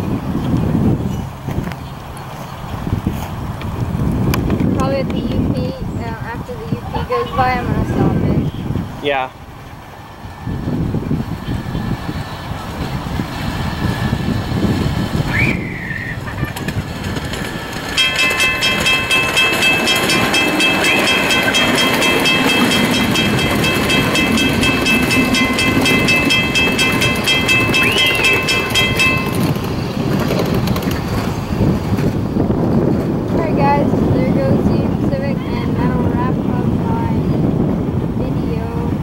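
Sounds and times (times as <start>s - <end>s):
small train rumbling on track: 0.0s - 39.0s
wheels clicking: 12.6s - 33.4s.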